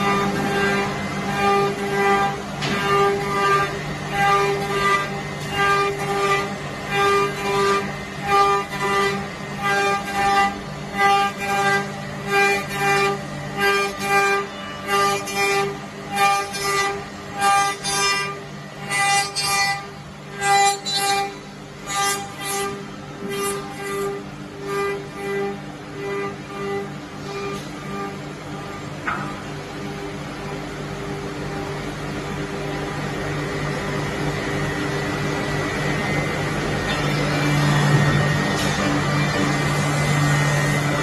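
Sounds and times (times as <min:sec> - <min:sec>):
spindle whine: 0:00.0 - 0:41.0.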